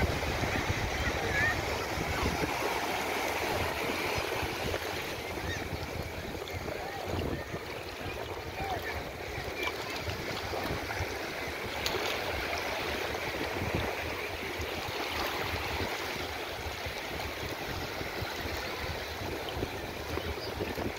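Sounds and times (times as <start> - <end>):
small waves lapping at shore: 0.0 - 20.9.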